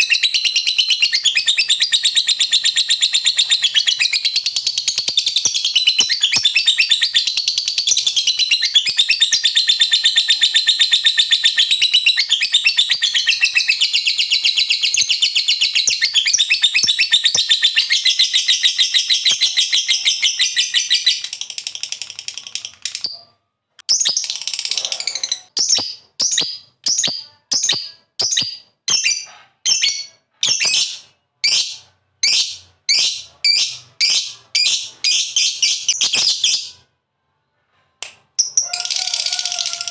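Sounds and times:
lovebird high-pitched trill: 23.9 - 36.8.

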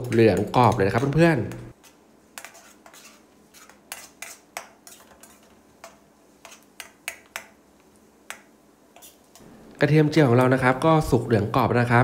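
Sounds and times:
oil sizzling: 0.0 - 10.5
metal ladle scraping a wok: 1.8 - 7.0.

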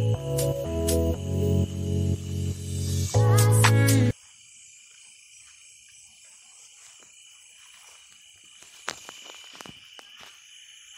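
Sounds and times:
crickets chirping: 0.0 - 10.9.

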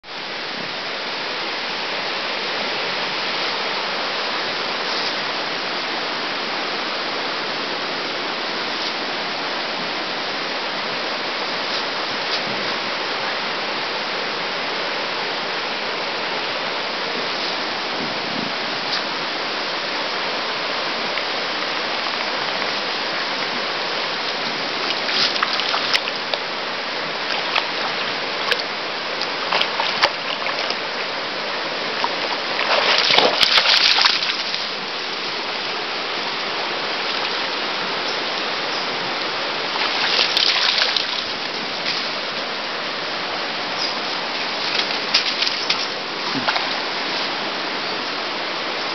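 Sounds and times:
shallow river flowing: 0.0 - 48.9
dog splashing through water: 29.3 - 30.8, 31.9 - 34.7, 39.6 - 42.1, 44.4 - 46.8.

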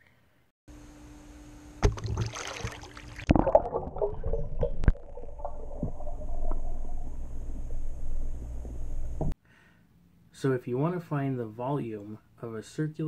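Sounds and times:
water splashes and knocks: 1.8 - 7.0
underwater gurgling and bubbling: 2.2 - 9.3.

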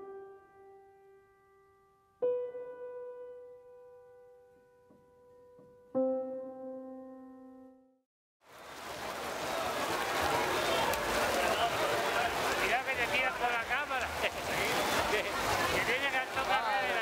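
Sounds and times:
sustained keyboard chords: 0.0 - 8.0.

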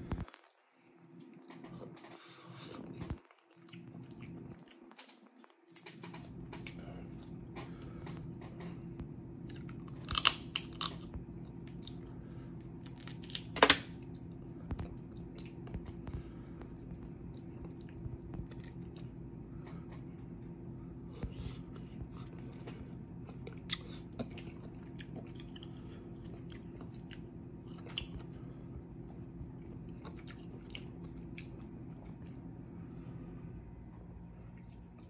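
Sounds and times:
chewing and biting seafood: 9.4 - 12.1, 21.2 - 28.4
crab shell cracking: 10.0 - 11.0.

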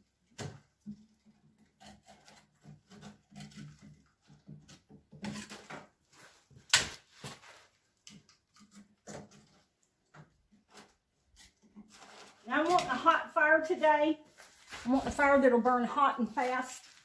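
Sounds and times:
wood pieces knocking and scraping: 0.3 - 13.1.

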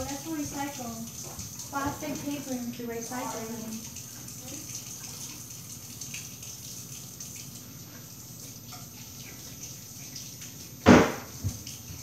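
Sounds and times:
loud knock: 10.9 - 11.3.

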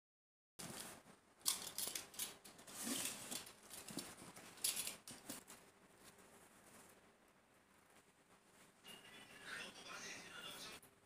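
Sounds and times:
cardboard scraping and crinkling: 2.6 - 4.3.

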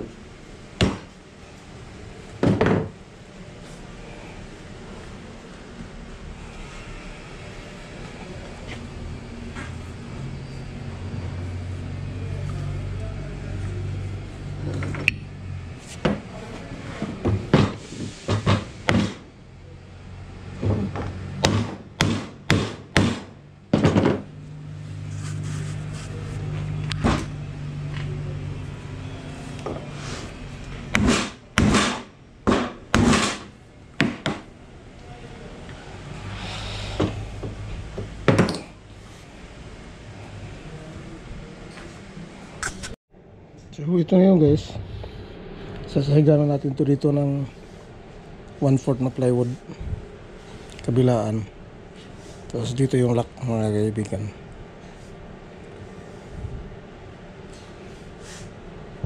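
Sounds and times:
hammer driving nails into wood: 17.5 - 19.2, 21.4 - 24.2, 30.9 - 34.4.

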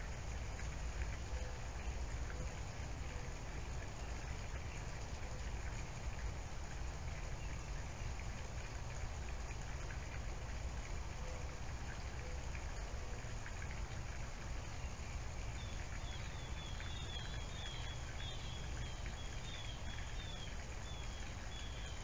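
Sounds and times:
steady hiss: 15.2 - 22.0
bird chirping: 15.6 - 22.0.

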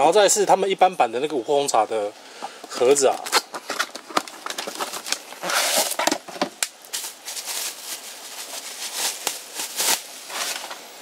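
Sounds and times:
cardboard rustling and scraping: 2.7 - 11.0.

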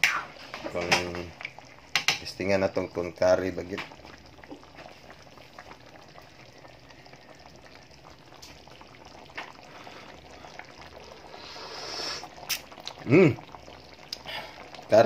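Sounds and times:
curry bubbling in a pan: 0.0 - 15.0
hiss: 11.3 - 12.6.

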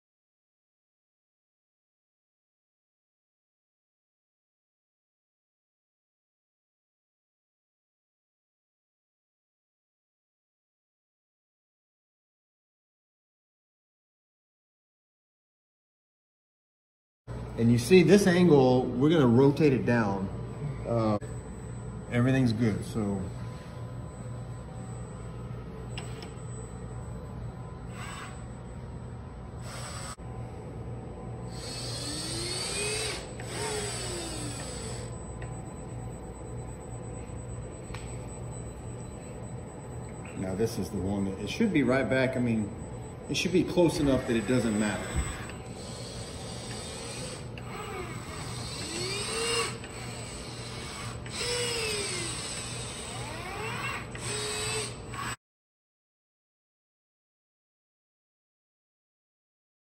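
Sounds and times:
steady low hum: 17.3 - 55.4
robot arm motors whining: 22.7 - 30.6, 31.4 - 55.4.

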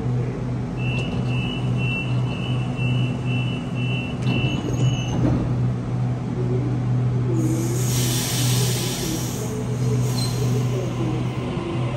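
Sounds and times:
train low hum: 0.0 - 11.9
train door warning beeps: 0.8 - 5.2
train doors knocking shut: 3.5 - 5.6.

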